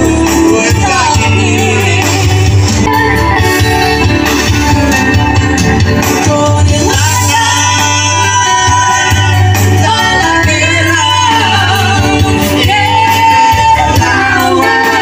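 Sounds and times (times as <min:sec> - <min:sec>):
woman and man singing: 0:00.0 - 0:02.9, 0:06.0 - 0:15.0
amplified live music: 0:00.0 - 0:15.0.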